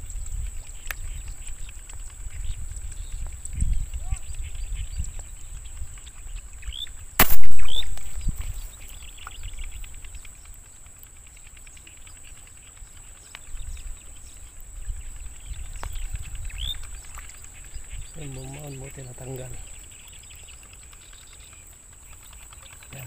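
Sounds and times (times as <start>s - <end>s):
rising bird chirps: 6.6s - 9.8s
air-gun shot: 7.2s - 8.5s.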